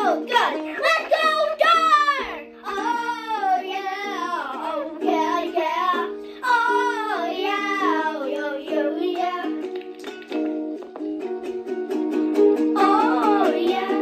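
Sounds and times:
girl singing: 0.0 - 9.8, 12.6 - 14.0
ukulele strumming chords: 0.0 - 14.0.

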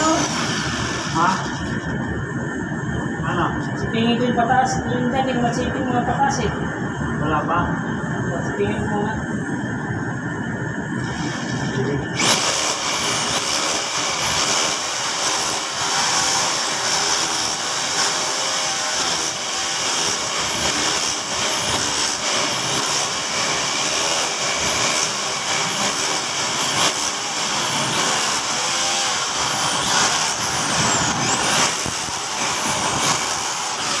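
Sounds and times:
power tool running: 0.0 - 1.9, 11.0 - 34.0.

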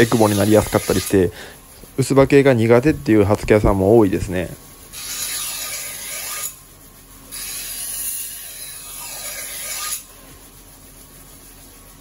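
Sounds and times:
knife grinding on whetstone wheel: 0.0 - 1.3, 4.9 - 6.6, 7.3 - 10.2.

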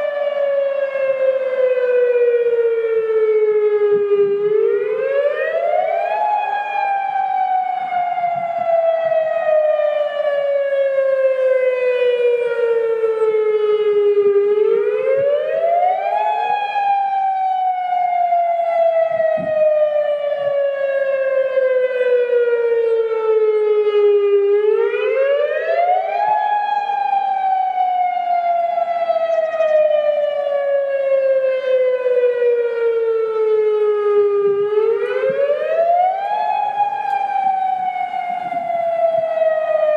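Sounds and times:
electronic siren wailing: 0.0 - 39.9.

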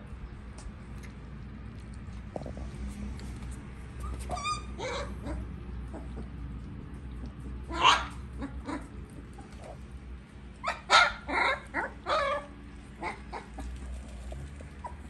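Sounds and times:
puppies barking: 4.0 - 6.4, 7.2 - 9.9, 10.6 - 15.0.

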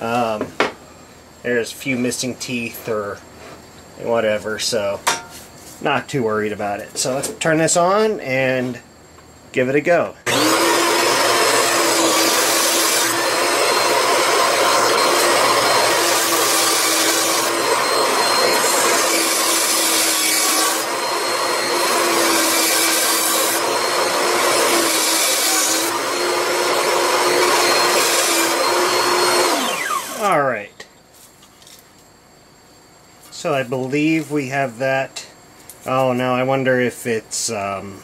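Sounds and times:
bandsaw humming: 10.2 - 30.5.

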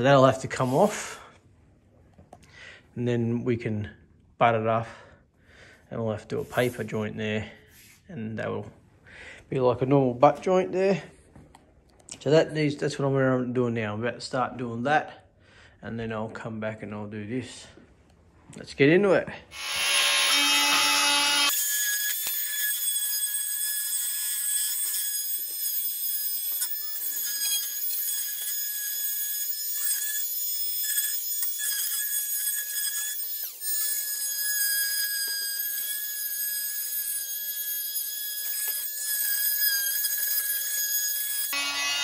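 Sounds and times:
multi-tool buzzing whine: 19.5 - 42.0.

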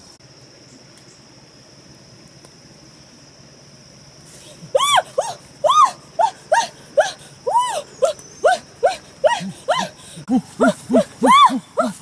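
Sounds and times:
high-pitched vocal cries: 4.5 - 12.0.

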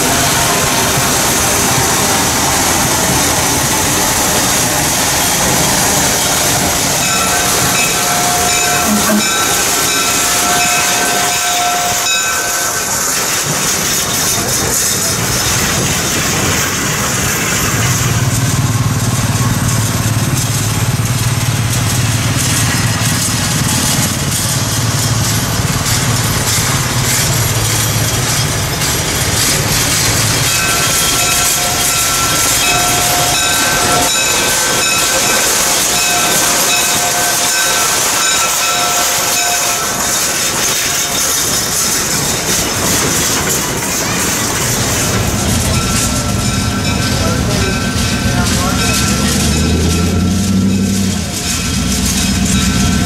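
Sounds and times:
steam whistle: 0.0 - 13.6
train rumble: 0.0 - 53.0
train wheels clicking on rail joints: 0.0 - 53.0.

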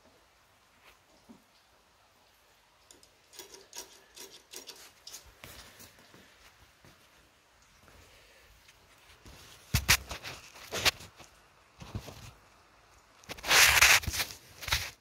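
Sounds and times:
handling rubs and clicks: 2.9 - 6.0, 8.7 - 12.4, 13.1 - 15.0.

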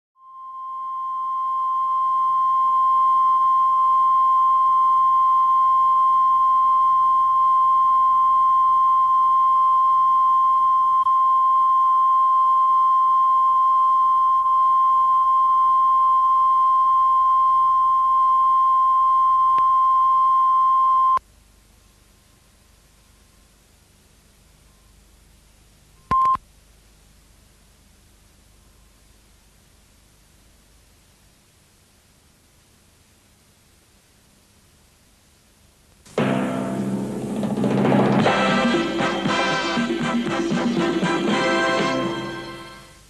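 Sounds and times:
steady test tone: 0.2 - 21.2, 36.1 - 43.0
faint tape hiss: 0.2 - 43.0.

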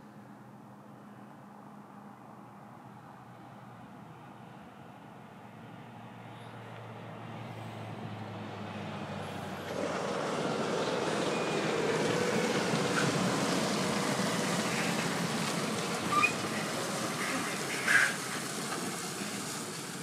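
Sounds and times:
truck diesel engine: 6.4 - 20.0
brief high squeak: 16.1 - 16.5.

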